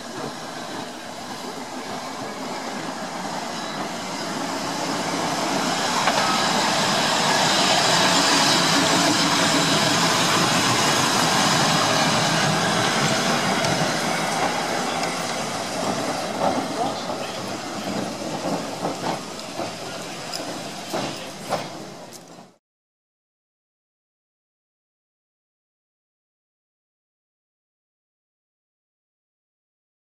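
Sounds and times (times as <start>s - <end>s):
tram wheels running on rails: 0.0s - 22.6s.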